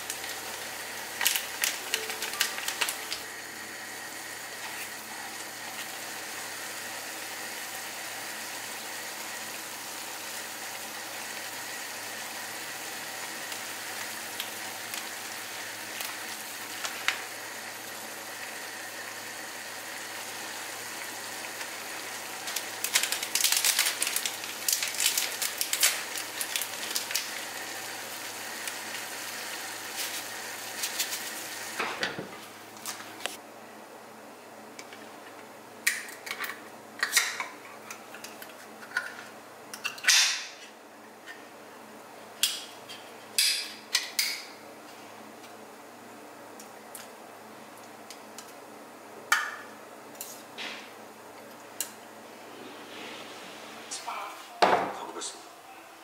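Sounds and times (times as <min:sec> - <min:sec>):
broth simmering with sizzle: 0:00.0 - 0:33.4, 0:46.5 - 0:54.2.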